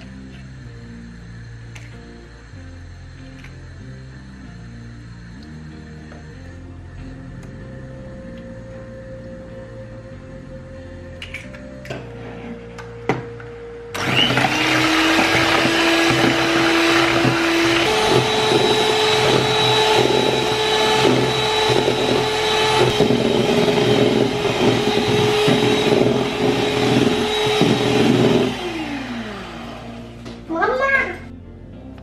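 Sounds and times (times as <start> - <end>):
electric hand mixer whining: 13.9 - 30.4
beaters churning in bowl: 14.0 - 29.9.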